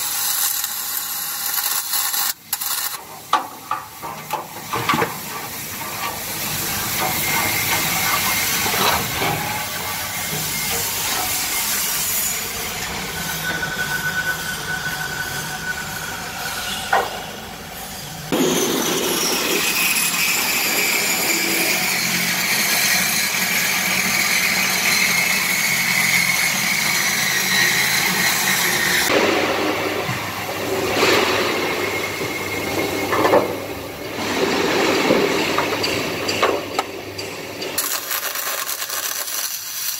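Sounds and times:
welding arc hiss and crackle: 0.0s - 12.9s, 31.0s - 39.9s.

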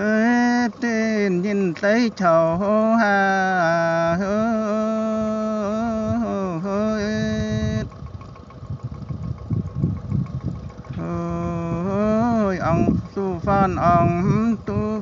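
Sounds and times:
low uneven rumbling: 0.0s - 15.0s
person singing a long note: 11.0s - 15.0s.

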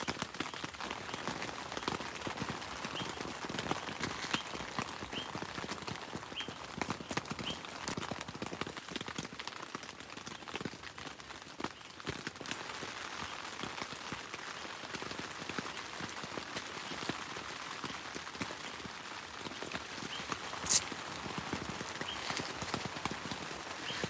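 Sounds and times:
fabric and shoes rustling: 20.6s - 20.8s
velcro rasp: 20.6s - 20.8s.

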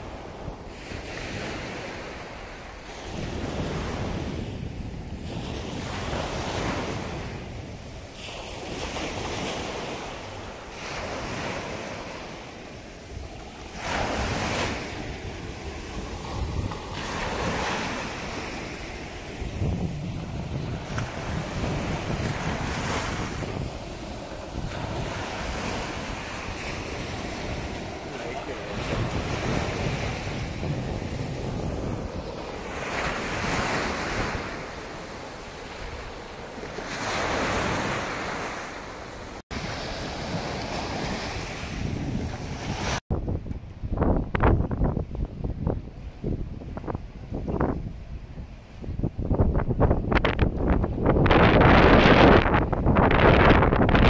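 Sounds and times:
ocean waves breaking on beach: 0.0s - 43.0s
wind buffeting microphone: 0.0s - 54.0s.

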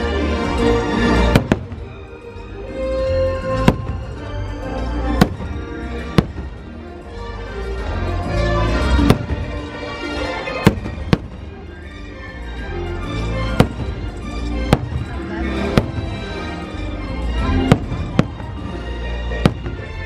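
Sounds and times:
fireworks show music: 0.0s - 20.0s
fireworks bangs: 1.2s - 2.1s, 3.5s - 4.4s, 5.1s - 6.7s, 9.0s - 9.8s, 10.4s - 11.5s, 13.6s - 16.7s, 17.4s - 20.0s.

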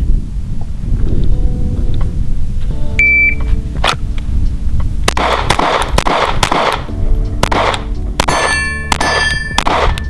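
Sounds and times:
rapid pistol shots: 5.1s - 10.0s.

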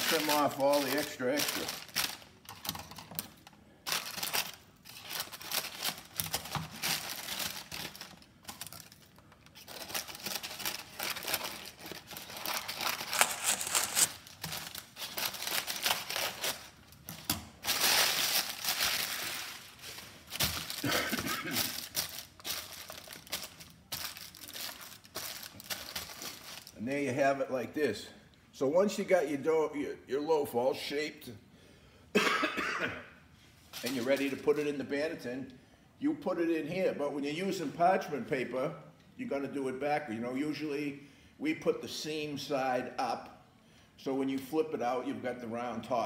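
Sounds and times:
parchment paper crinkling: 0.0s - 26.8s, 33.7s - 34.6s.

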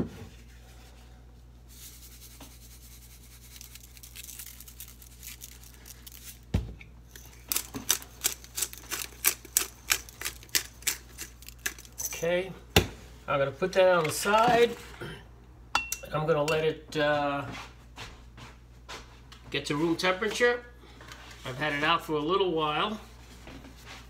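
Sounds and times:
low steady hum: 0.1s - 18.7s
pepper mill grinding clicks: 7.2s - 12.1s.

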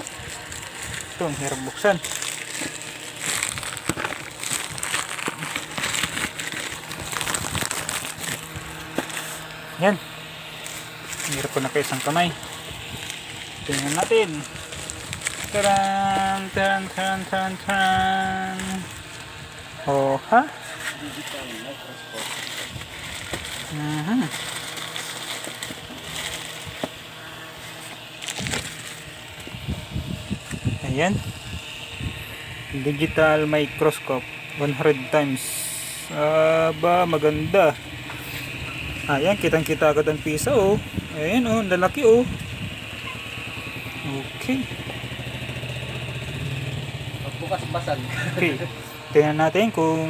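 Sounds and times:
plastic packaging crinkling: 0.0s - 9.7s, 10.6s - 19.4s, 20.8s - 30.8s.

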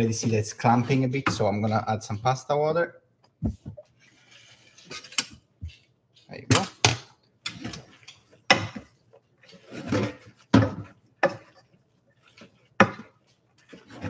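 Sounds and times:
spatula scraping a pan: 0.0s - 1.9s, 4.0s - 5.4s, 7.4s - 14.0s.

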